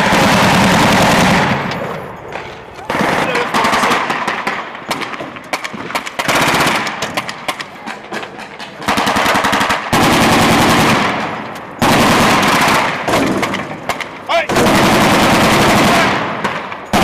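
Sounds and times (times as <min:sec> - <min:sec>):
automatic gunfire bursts: 0:00.0 - 0:01.7, 0:02.9 - 0:17.0.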